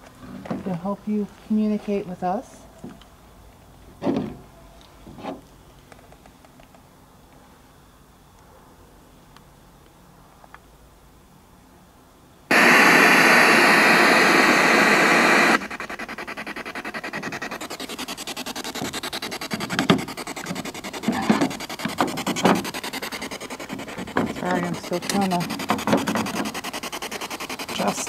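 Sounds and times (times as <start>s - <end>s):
pulsing static sweep: 12.5s - 28.0s
radio static: 12.5s - 28.0s.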